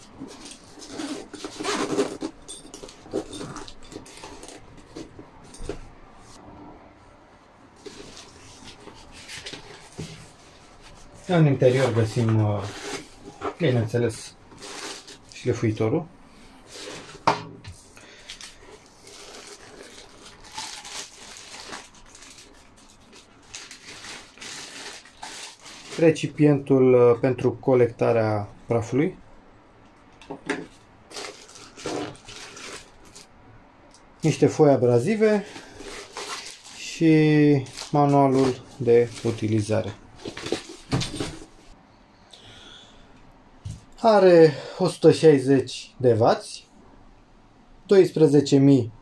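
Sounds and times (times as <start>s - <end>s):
zipper being pulled open: 0.8s - 2.4s
plastic wrapping crinkling: 18.0s - 26.3s, 31.1s - 33.3s, 35.5s - 37.0s, 37.6s - 41.4s.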